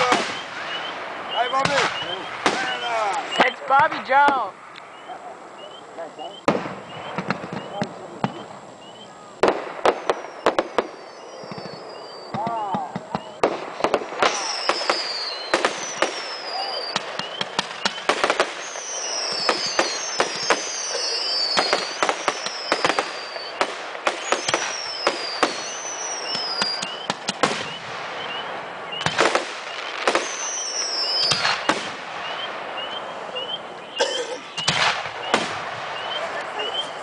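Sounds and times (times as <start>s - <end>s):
falling firework whistles: 0.0s - 3.9s, 4.9s - 37.0s
fireworks crackle: 0.0s - 37.0s
firework shells bursting: 6.4s - 8.7s, 9.4s - 33.0s, 34.0s - 36.2s.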